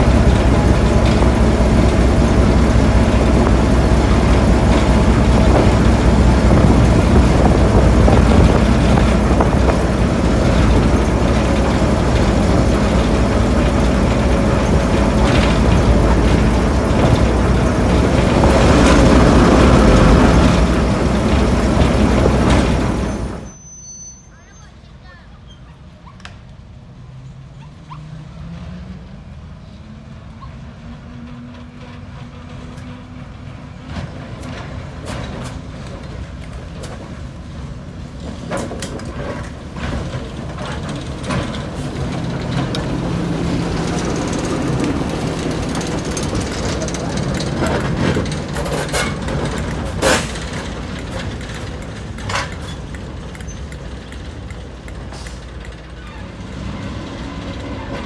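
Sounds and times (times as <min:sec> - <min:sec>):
diesel locomotive engine: 0:00.0 - 0:58.0
metallic clicks and clanks: 0:43.9 - 0:56.1.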